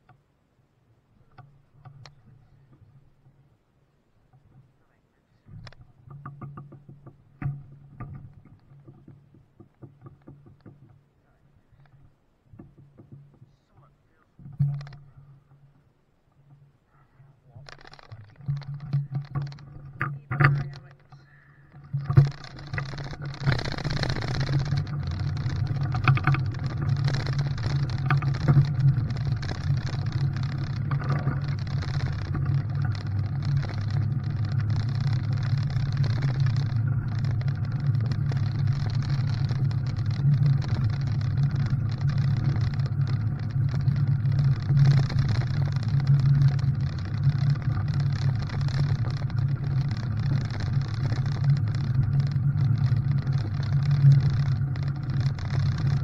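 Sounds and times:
vehicle engine and road noise: 17.7s - 56.0s.

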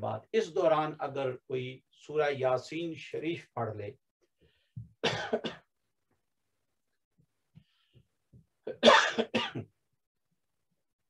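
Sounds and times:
man coughing: 5.0s - 5.7s, 8.6s - 9.7s.

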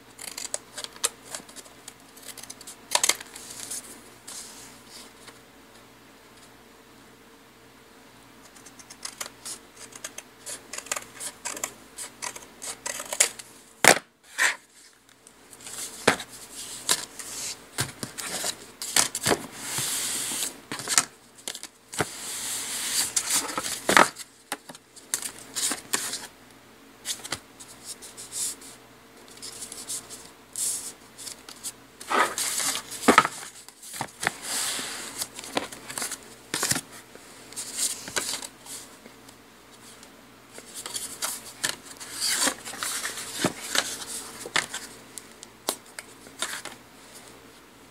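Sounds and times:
paper sliding and rustling: 15.6s - 21.0s, 22.0s - 24.1s, 29.4s - 36.8s, 40.6s - 44.9s.

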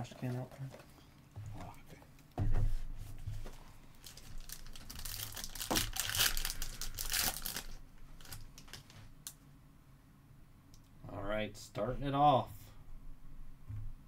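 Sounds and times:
foil pack tearing and crinkling: 4.0s - 8.9s.

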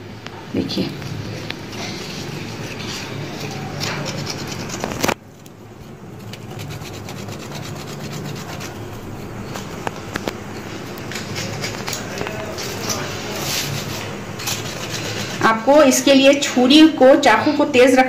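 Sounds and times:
knife scraping skin: 1.7s - 5.2s, 6.1s - 9.8s, 11.0s - 15.5s.

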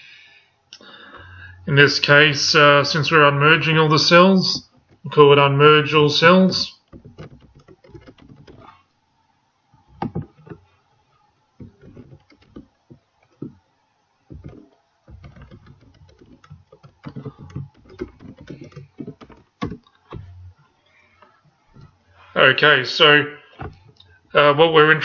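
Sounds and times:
computer keyboard typing: 6.9s - 8.7s, 14.3s - 20.4s.

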